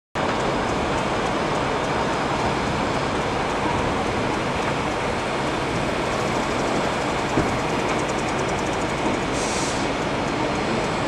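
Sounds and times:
steam locomotive blowing off steam: 0:05.2 - 0:11.0.

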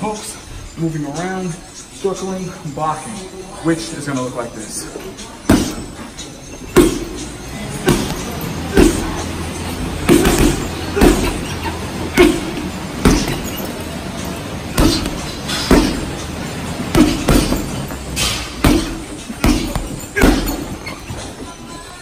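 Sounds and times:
gloves punching heavy bag: 0:05.5 - 0:05.9, 0:06.8 - 0:07.2, 0:07.8 - 0:09.4, 0:10.0 - 0:14.0, 0:14.7 - 0:21.0.

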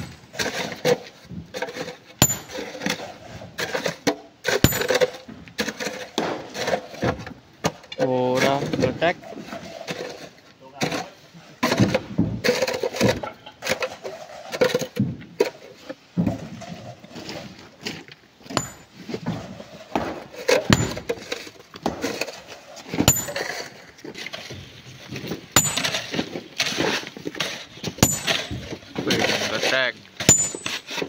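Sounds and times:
tools striking and breaking rock: 0:00.0 - 0:00.4, 0:02.2 - 0:03.0, 0:04.5 - 0:06.4, 0:18.5 - 0:19.0, 0:20.0 - 0:22.2, 0:23.0 - 0:23.8, 0:25.5 - 0:26.8, 0:27.8 - 0:29.2, 0:30.2 - 0:31.0.

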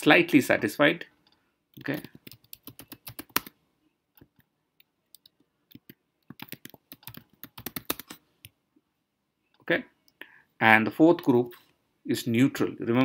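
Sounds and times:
typing on computer keyboard: 0:01.8 - 0:03.6, 0:05.1 - 0:08.2.

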